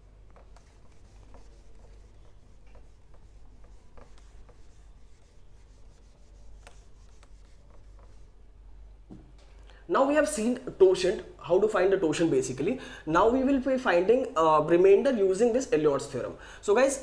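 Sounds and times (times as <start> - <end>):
eraser rubbing on whiteboard: 0.2 - 8.4.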